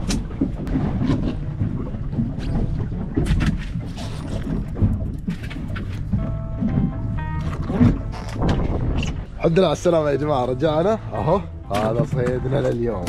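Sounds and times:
wind on microphone: 0:00.0 - 0:09.4
boat motor rumbling: 0:00.0 - 0:13.0.

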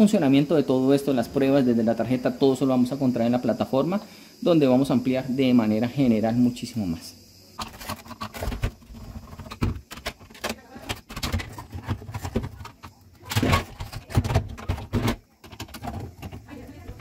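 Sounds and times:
refrigerator parts clicking and rattling: 0:07.6 - 0:17.0.

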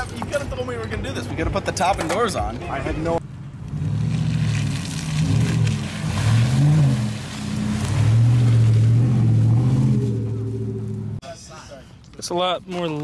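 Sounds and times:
pickup truck engine driving past: 0:03.6 - 0:11.2.

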